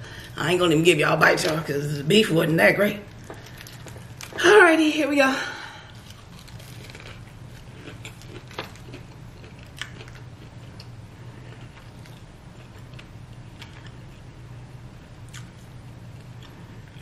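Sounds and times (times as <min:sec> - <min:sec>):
low steady hum: 0:00.0 - 0:17.0
chewing crunches: 0:05.9 - 0:14.2, 0:15.0 - 0:17.0.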